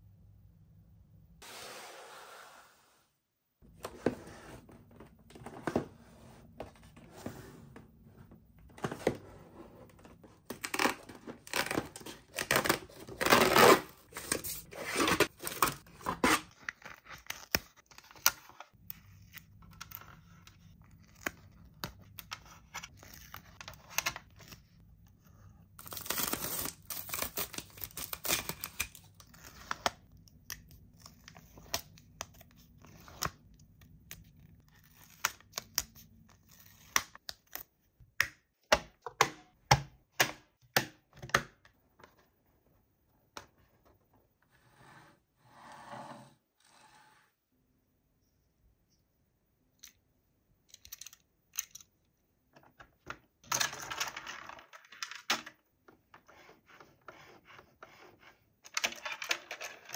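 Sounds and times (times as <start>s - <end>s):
packaging tearing and crinkling: 25.8s - 29.1s.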